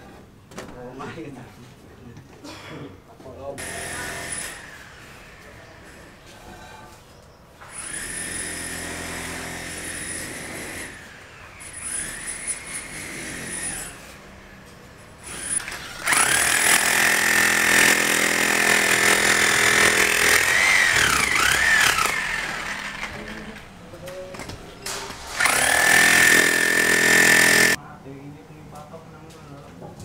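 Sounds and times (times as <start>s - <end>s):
power tool motor whining: 15.2s - 23.7s, 25.3s - 27.8s.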